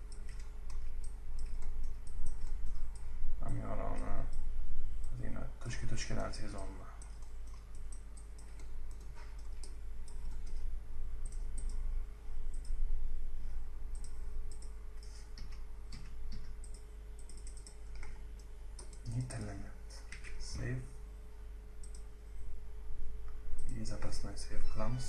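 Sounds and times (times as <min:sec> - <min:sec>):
mouse and keyboard clicking: 0:00.0 - 0:03.1, 0:13.9 - 0:20.4
low hum: 0:00.0 - 0:25.0.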